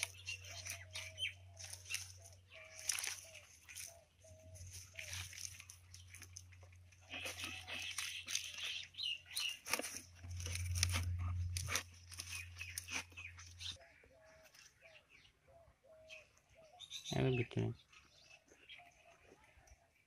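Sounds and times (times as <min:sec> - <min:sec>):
leaves crinkling and crunching: 0:00.0 - 0:13.8
steady low hum: 0:10.0 - 0:13.8.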